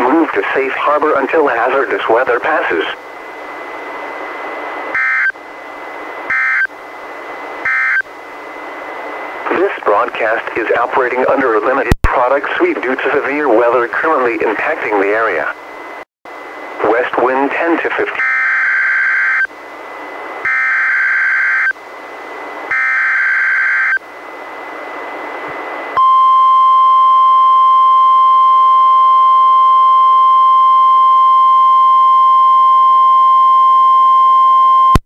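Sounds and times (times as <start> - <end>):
radio hiss: 0.0 - 4.8, 8.8 - 15.6, 16.6 - 18.3
steady warning alarm tone: 4.9 - 5.4, 6.3 - 6.7, 7.6 - 8.1, 18.1 - 19.5, 20.4 - 21.8, 22.7 - 24.0.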